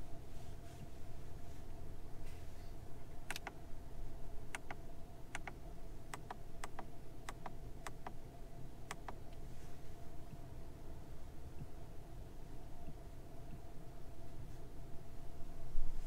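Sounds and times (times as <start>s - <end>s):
faint steady hum: 0.0s - 16.0s
toggle switches double clicking: 3.3s - 3.6s, 4.6s - 4.8s, 5.4s - 8.2s, 8.9s - 9.2s.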